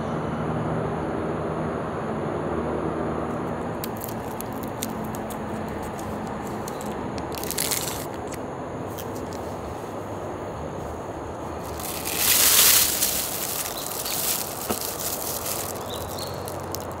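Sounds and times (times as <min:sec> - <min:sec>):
outdoor background noise: 0:00.0 - 0:17.0
plastic bag crinkling: 0:03.8 - 0:08.4, 0:11.6 - 0:17.0.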